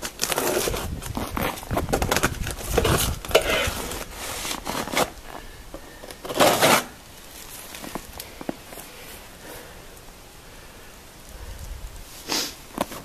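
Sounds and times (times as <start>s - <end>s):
packing material rustling and scraping: 0.0s - 9.3s, 12.0s - 13.0s.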